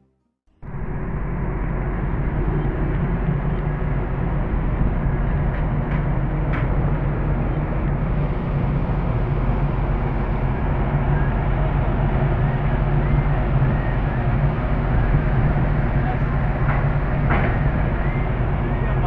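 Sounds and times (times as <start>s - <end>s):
ferry engines rumbling: 0.5s - 19.0s.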